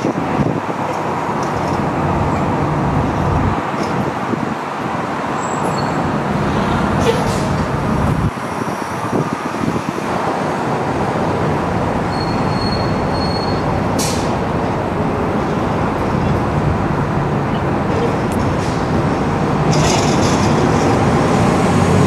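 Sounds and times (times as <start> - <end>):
vehicle running noise: 0.0 - 22.0
thin high squeal: 12.1 - 13.6.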